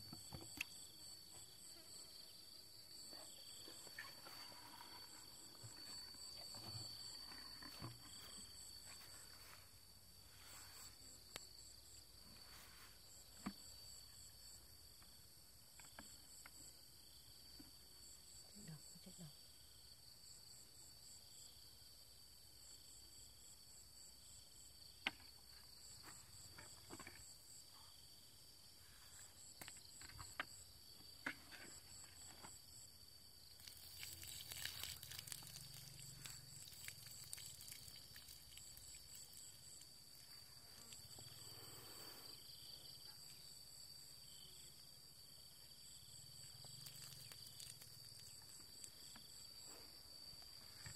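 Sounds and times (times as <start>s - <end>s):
insects chirping: 0.0s - 50.9s
water poured onto ground: 33.5s - 40.3s, 46.7s - 48.9s.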